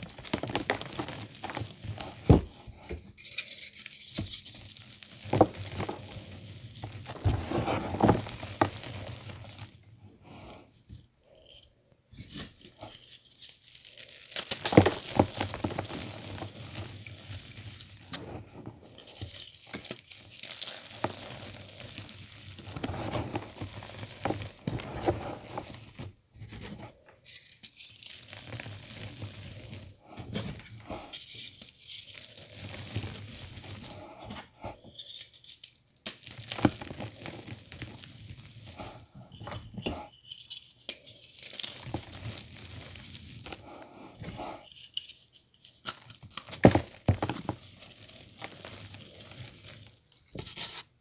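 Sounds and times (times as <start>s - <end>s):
chalk crumbling in hands: 0.0s - 2.3s, 3.2s - 9.8s, 12.7s - 18.2s, 18.8s - 25.9s, 40.2s - 43.6s
gritty rustling of powder: 0.0s - 10.6s, 12.2s - 27.0s, 27.7s - 51.0s.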